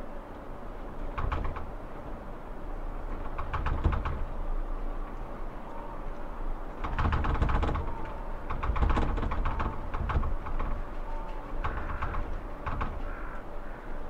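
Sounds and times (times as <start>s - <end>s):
rapid rattling and clicking: 1.0s - 1.8s, 3.0s - 4.5s, 6.7s - 13.4s.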